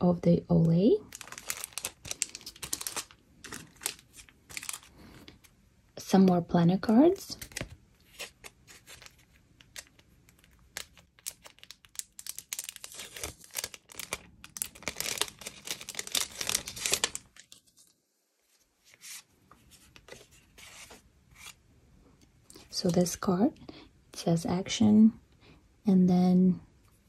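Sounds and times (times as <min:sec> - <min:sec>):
paper envelope tearing and crinkling: 0:01.1 - 0:05.0, 0:07.4 - 0:17.8
faint paper handling: 0:12.5 - 0:21.6.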